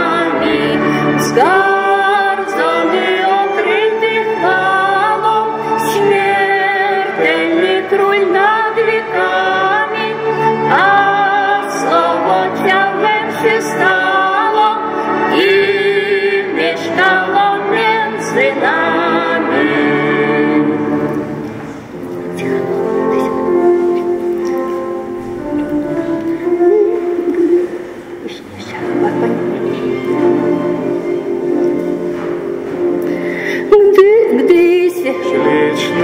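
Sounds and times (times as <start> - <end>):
woman and man singing a carol: 0.0 - 21.1, 33.6 - 36.0
background music of long held notes: 0.0 - 36.0.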